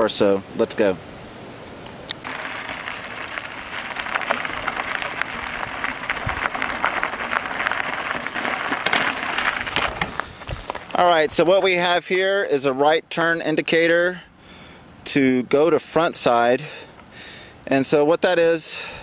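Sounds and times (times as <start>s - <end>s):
bicycle tyres crunching on rough ground: 2.2s - 12.0s.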